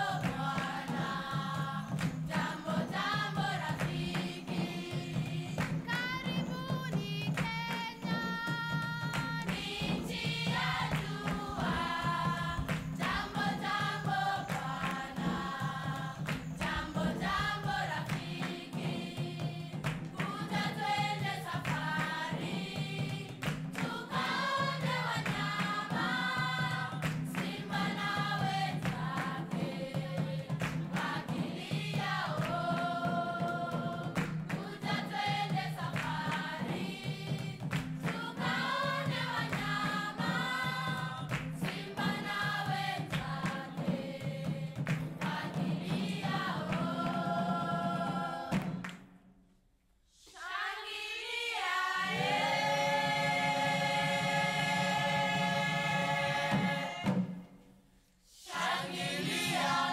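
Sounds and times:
choir singing: 0:00.0 - 0:48.8, 0:50.2 - 0:57.6, 0:58.3 - 0:59.9.

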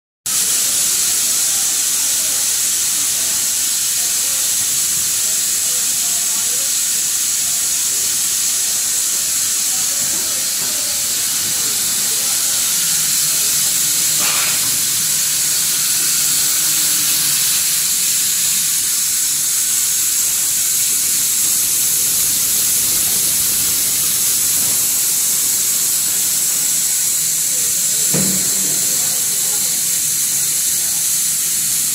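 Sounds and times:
blow molding machine hissing: 0:00.3 - 0:31.9.

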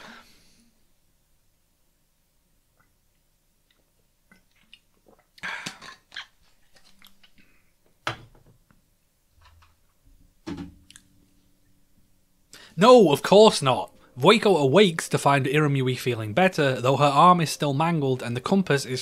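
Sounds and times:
breathing: 0:00.0 - 0:00.8, 0:05.4 - 0:05.8, 0:12.5 - 0:12.8
man gulping and swallowing: 0:02.7 - 0:07.6.

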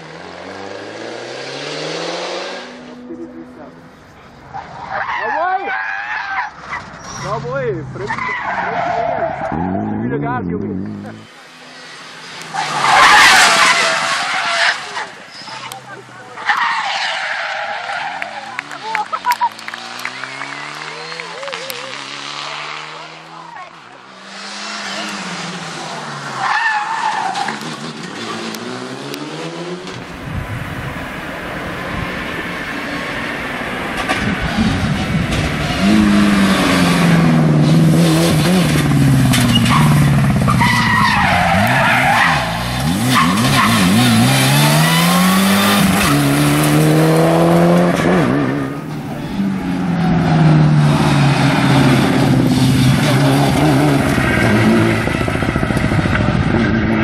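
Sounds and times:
rally car engines revving: 0:00.0 - 0:57.0
tyre squeal: 0:04.5 - 0:10.0, 0:12.5 - 0:15.7, 0:39.5 - 0:46.4.

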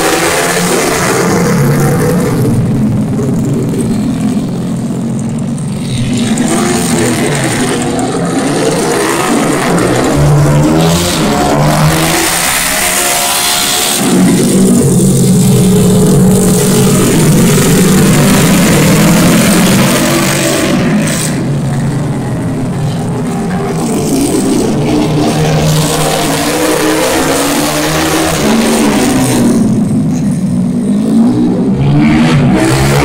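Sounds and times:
motorcycle engines revving past: 0:00.0 - 0:33.0.

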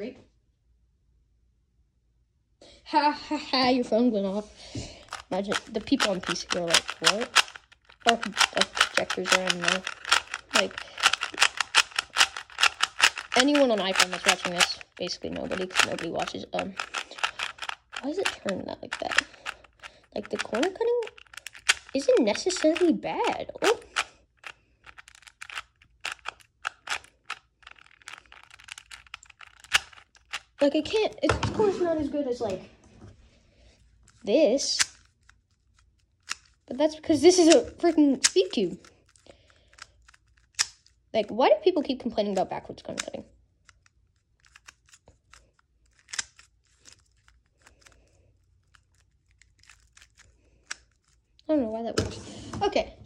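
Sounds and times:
plastic puzzle cube clicking turns: 0:05.0 - 0:31.2, 0:34.1 - 0:41.0, 0:42.3 - 0:51.3.

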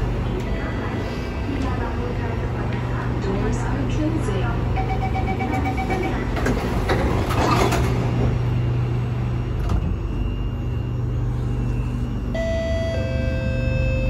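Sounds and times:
low hum of train equipment: 0:00.0 - 0:14.0
train door warning beeps: 0:04.7 - 0:06.4, 0:09.6 - 0:14.0
train doors sliding shut: 0:06.3 - 0:08.5.

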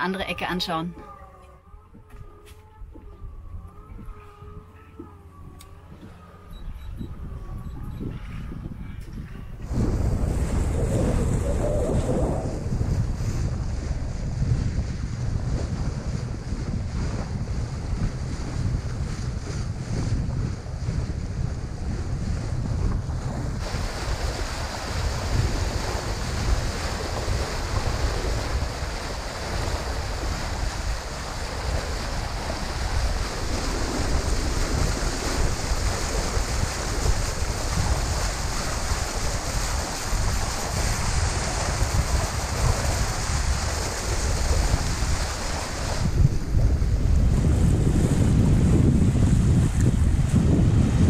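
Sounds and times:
wind buffeting microphone: 0:02.8 - 0:51.0
water washing along boat hull: 0:03.8 - 0:51.0.

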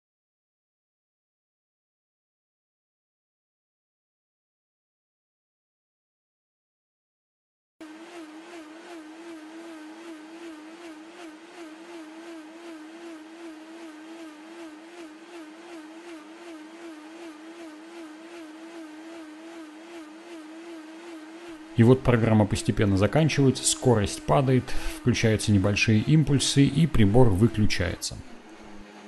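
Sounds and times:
blender motor whining: 0:07.8 - 0:29.0.

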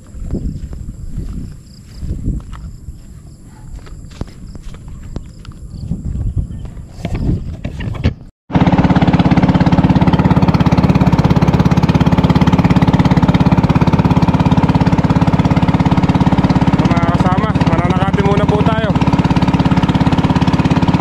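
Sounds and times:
knocks and scuffs: 0:00.0 - 0:08.3
small engine chugging: 0:06.9 - 0:21.0.

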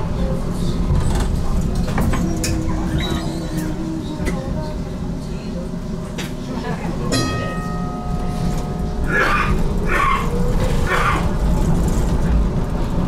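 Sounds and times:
tram rumbling: 0:00.0 - 0:13.0
ringing chime: 0:07.2 - 0:09.0.

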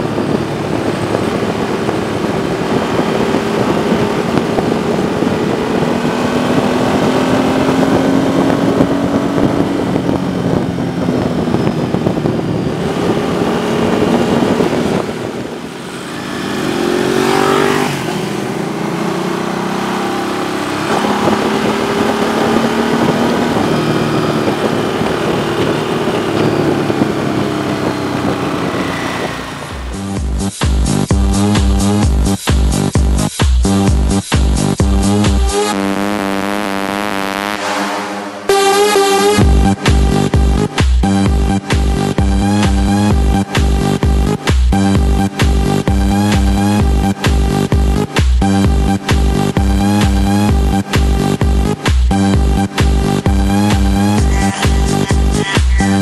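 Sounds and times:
wind rushing: 0:00.0 - 0:31.0, 0:37.3 - 0:38.5
motorcycle engine at speed: 0:00.0 - 0:56.0.

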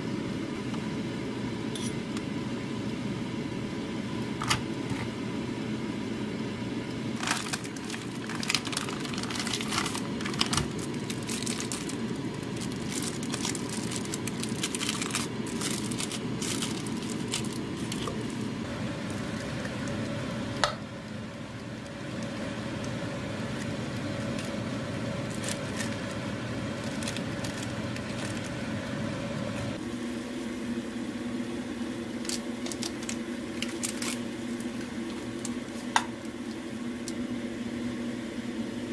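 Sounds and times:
fan hum: 0:00.0 - 0:38.9
water boiling in pot: 0:00.2 - 0:38.5
plastic bag crinkling: 0:07.2 - 0:20.1, 0:25.2 - 0:28.7, 0:32.2 - 0:36.0.

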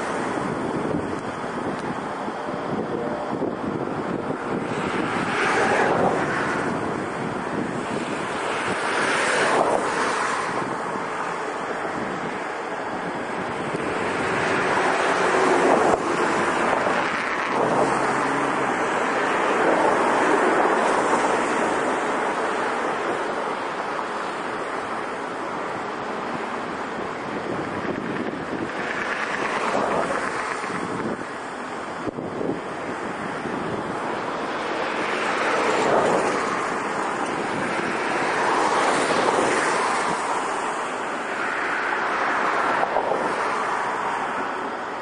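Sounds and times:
wind on microphone: 0:00.0 - 0:45.0.

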